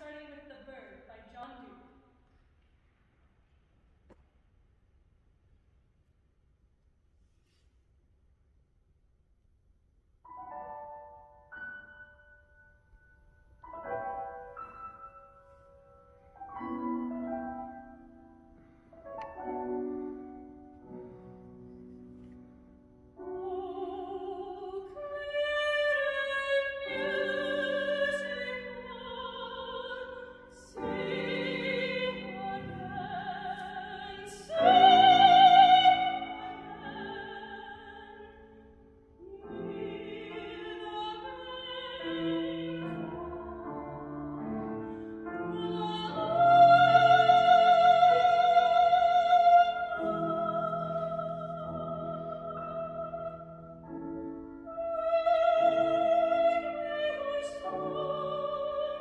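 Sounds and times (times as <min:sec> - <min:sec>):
grand piano accompaniment: 0:10.3 - 0:59.0
woman singing with vibrato: 0:23.2 - 0:38.6, 0:39.2 - 0:53.7, 0:54.7 - 0:59.0.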